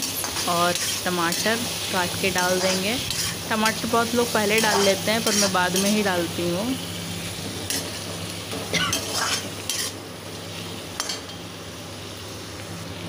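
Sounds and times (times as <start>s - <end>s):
vegetables sizzling in oil: 0.0s - 13.0s
metal spatula scraping pan: 2.5s - 3.8s, 4.5s - 6.0s, 8.9s - 10.0s.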